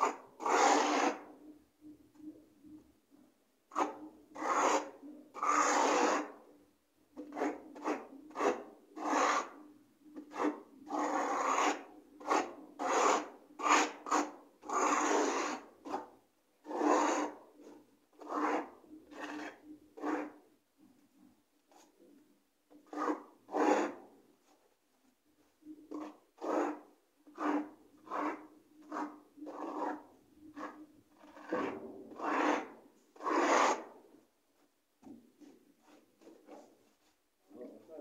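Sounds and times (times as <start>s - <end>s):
trowel scraping rough wall: 0.0s - 1.4s, 3.7s - 6.4s, 7.2s - 9.6s, 10.2s - 21.0s, 22.7s - 24.7s, 25.4s - 34.3s.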